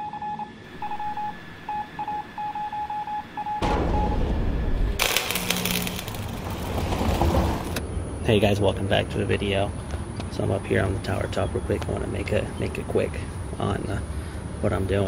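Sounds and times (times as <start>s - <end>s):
short electronic beeps: 0.0s - 4.3s
faint steady hum: 0.0s - 6.4s, 7.8s - 15.0s
loud low rumble: 3.4s - 8.5s.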